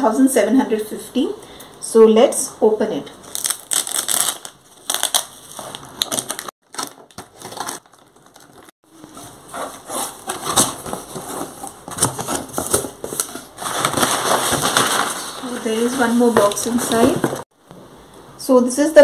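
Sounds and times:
packing paper crinkling: 3.2s - 9.1s, 10.2s - 17.4s
packing tape ripping: 3.3s - 8.7s.

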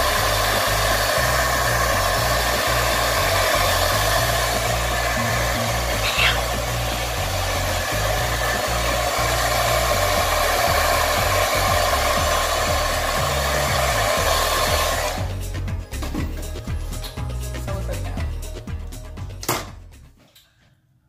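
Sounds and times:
hair dryer blowing: 0.0s - 15.8s.

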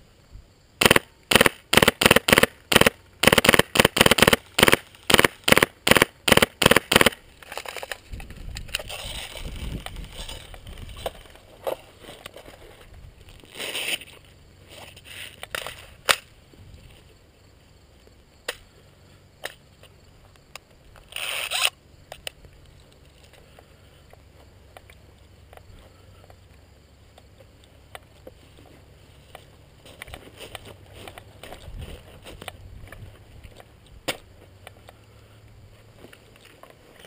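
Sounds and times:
sharp snaps: 0.8s - 7.9s
rustling and scraping of gear: 7.3s - 16.0s, 22.5s - 26.6s, 27.2s - 35.0s, 35.6s - 37.0s
footsteps: 7.4s - 17.1s, 28.1s - 34.9s.

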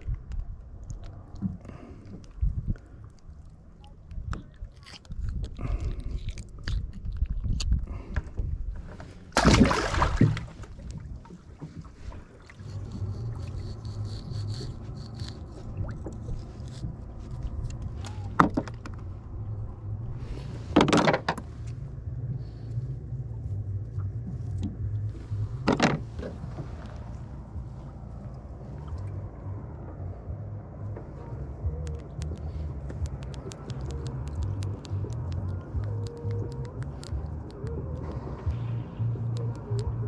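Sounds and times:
steady low hum: 0.0s - 40.0s
handling noises on boat: 6.9s - 22.0s, 22.8s - 29.2s
splash-like rush: 9.4s - 10.6s.

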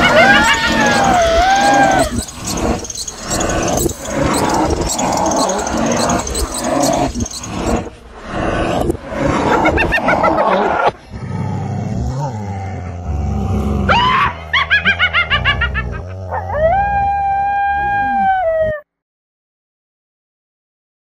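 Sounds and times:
long held howl: 0.0s - 2.7s, 16.0s - 18.9s
wavering screams: 0.0s - 7.9s, 13.9s - 18.7s.

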